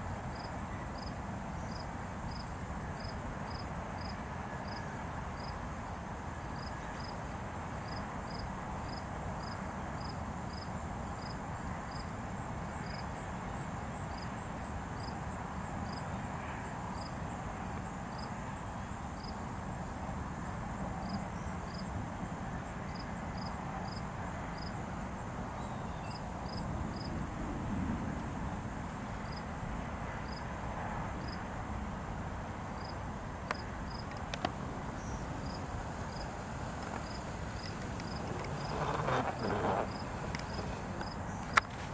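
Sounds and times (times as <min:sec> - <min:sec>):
crickets chirping: 0:00.3 - 0:27.2, 0:28.1 - 0:41.9
high insect trill: 0:32.8 - 0:41.9.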